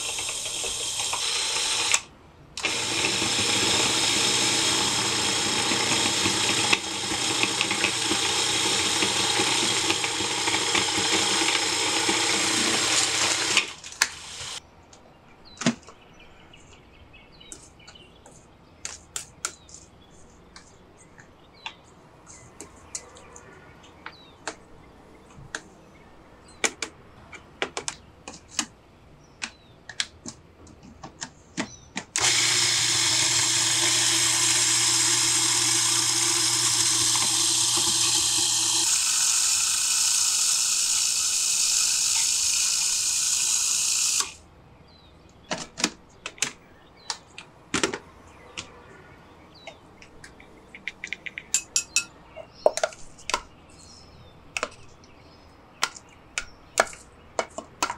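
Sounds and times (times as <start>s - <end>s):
food processor whirring: 0.0s - 2.0s, 2.6s - 14.6s, 32.2s - 44.4s.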